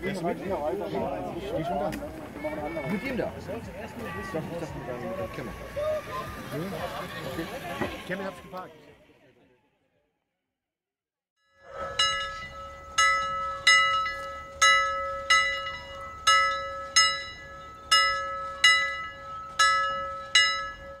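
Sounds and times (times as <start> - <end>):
handbell ringing: 11.7 - 21.0.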